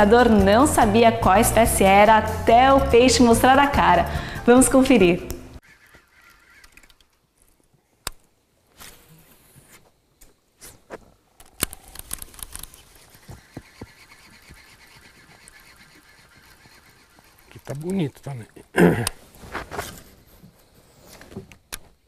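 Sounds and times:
fishing line whirring out: 0:05.6 - 0:07.2, 0:08.7 - 0:09.8, 0:11.4 - 0:17.9
reel ticking: 0:05.6 - 0:07.2, 0:11.6 - 0:18.6
fishing reel click: 0:13.8 - 0:18.1.

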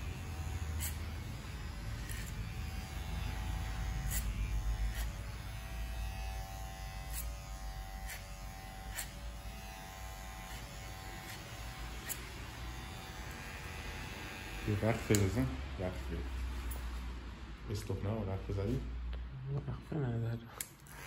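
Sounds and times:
electric hair clipper buzzing: 0:00.0 - 0:15.6.

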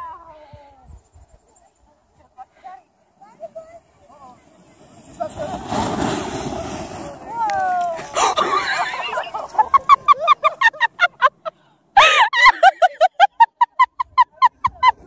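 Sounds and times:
high-pitched cackling laughter: 0:08.2 - 0:15.0
loud whooping laugh: 0:08.2 - 0:15.0.

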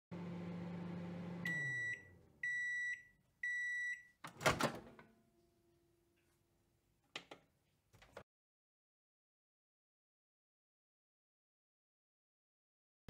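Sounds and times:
microwave humming: 0:00.1 - 0:05.2.

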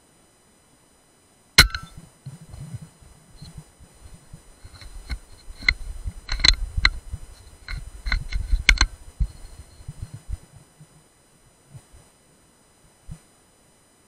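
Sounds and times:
low bumps of gun handling: 0:01.6 - 0:02.0
sharp clicks and knocks: 0:01.6 - 0:02.6, 0:04.6 - 0:07.0, 0:07.6 - 0:09.4.

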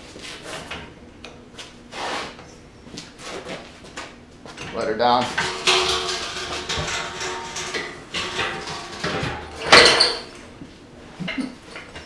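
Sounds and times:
metal scraping and clanking: 0:04.5 - 0:10.5
floor jack lowering: 0:05.2 - 0:10.5.

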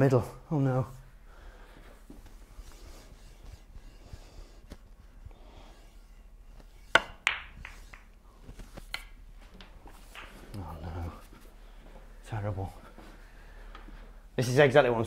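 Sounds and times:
snooker balls clicking: 0:06.8 - 0:08.2, 0:08.8 - 0:10.8
cue tip striking ball: 0:06.9 - 0:08.1.

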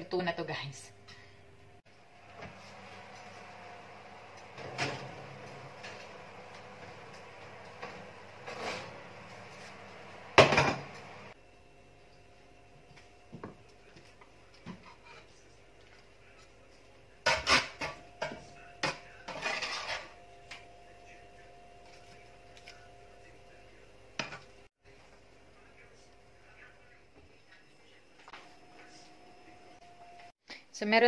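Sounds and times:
metal utensils clinking and scraping: 0:07.8 - 0:09.0, 0:19.3 - 0:20.2.

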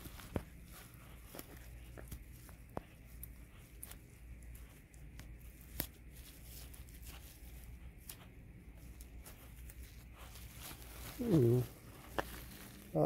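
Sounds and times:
plastic bag crinkling: 0:05.6 - 0:13.0.

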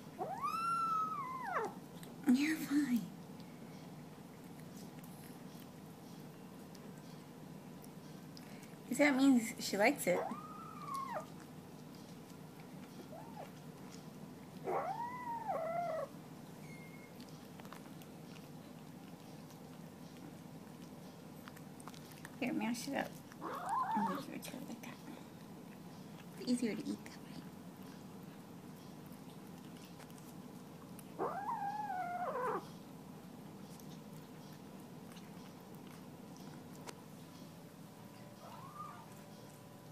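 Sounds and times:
faint steady hum: 0:00.0 - 0:39.9
cat meowing: 0:00.2 - 0:01.8, 0:10.2 - 0:11.3, 0:14.7 - 0:16.1, 0:23.4 - 0:24.2, 0:31.2 - 0:32.6.

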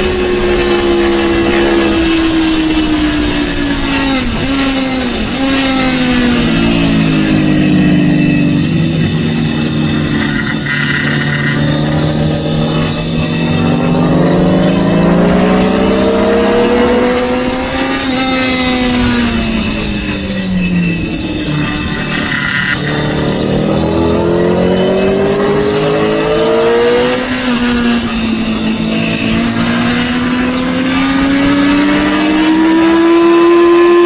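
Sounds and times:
motorcycle engine running hard: 0:00.0 - 0:34.0
wind noise: 0:00.0 - 0:34.0.

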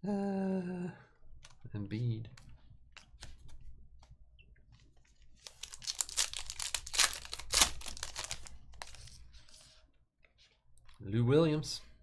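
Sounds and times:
foil wrapper tearing and crinkling: 0:05.4 - 0:09.1.

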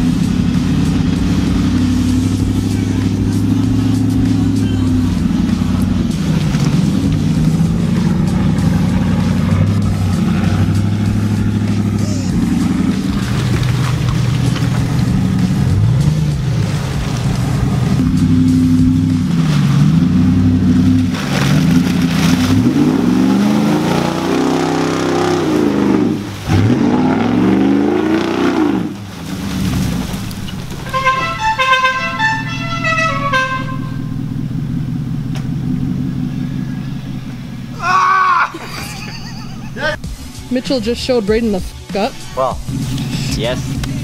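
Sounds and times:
truck engine revving: 0:00.0 - 0:44.0.

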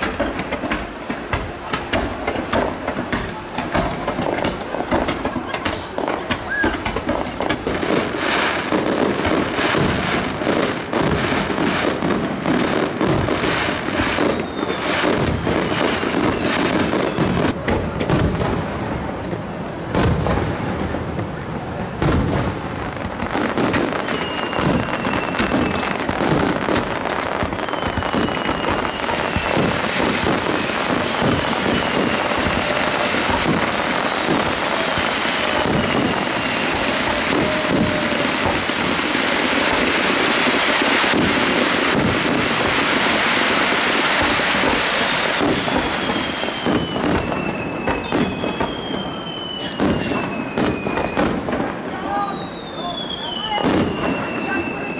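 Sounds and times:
fireworks crackling: 0:00.0 - 0:54.9
fireworks shells bursting: 0:00.0 - 0:54.9
falling whistles: 0:04.4 - 0:09.0, 0:14.0 - 0:17.5, 0:23.5 - 0:40.3, 0:44.9 - 0:54.9.

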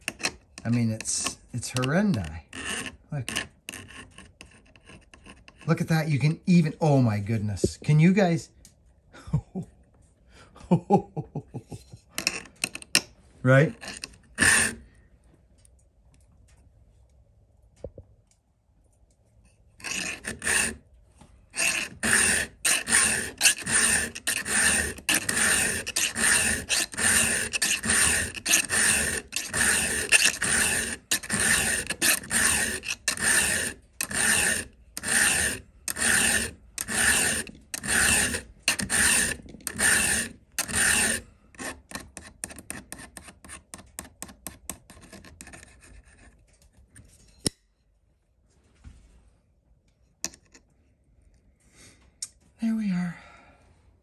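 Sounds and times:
file rasping on chainsaw chain: 0:00.0 - 0:06.0, 0:13.6 - 0:14.8, 0:19.8 - 0:20.8, 0:21.5 - 0:43.4.

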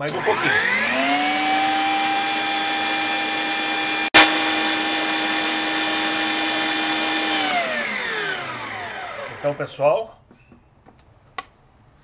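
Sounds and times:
stand mixer motor whining: 0:00.0 - 0:09.6.

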